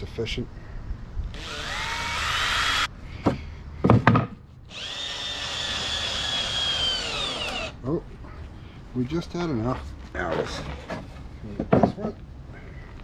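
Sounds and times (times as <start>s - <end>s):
cordless drill driving screws: 1.3s - 2.9s, 4.7s - 7.8s.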